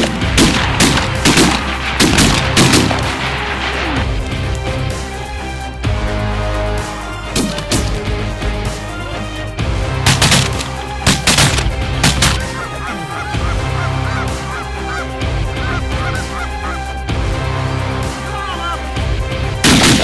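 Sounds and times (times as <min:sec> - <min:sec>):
background music with drum hits: 0:00.0 - 0:20.0
geese honking: 0:10.2 - 0:17.1, 0:18.0 - 0:18.9.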